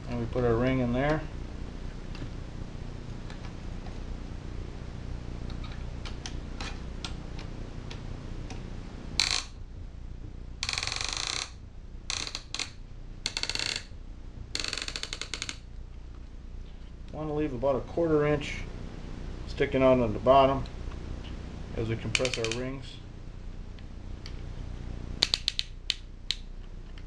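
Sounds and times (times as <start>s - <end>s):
steady low hum: 0.0s - 27.0s
ratchet clicking: 9.2s - 9.6s, 10.6s - 13.9s, 14.6s - 15.6s, 22.1s - 22.6s
sharp click: 22.1s - 22.6s, 25.2s - 26.5s.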